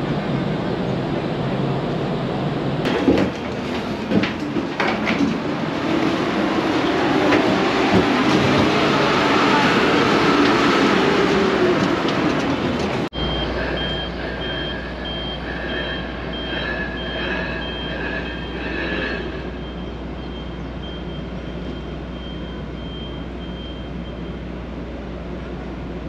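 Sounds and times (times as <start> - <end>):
low machinery hum: 11.4 - 26.0
high electronic reversing beeps: 13.2 - 24.3.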